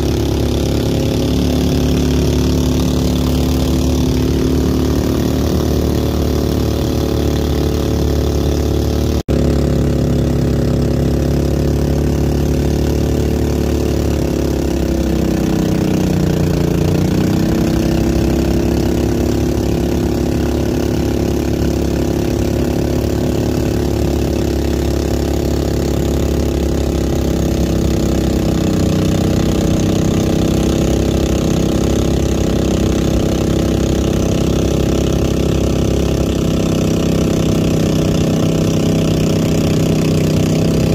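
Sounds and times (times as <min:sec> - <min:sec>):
boat engine running: 0:00.0 - 0:40.9.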